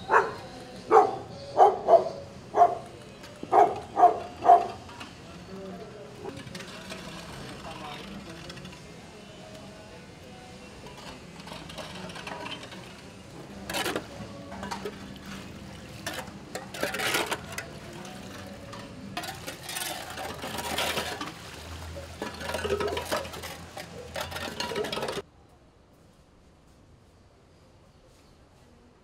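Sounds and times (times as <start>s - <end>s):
hand tools scraping concrete: 0.1s - 25.2s.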